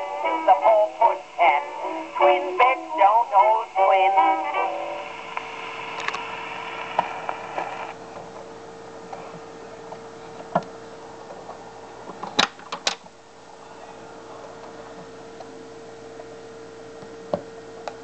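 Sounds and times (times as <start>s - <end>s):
record surface hiss with clicks: 3.7s - 9.2s, 16.2s - 18.0s.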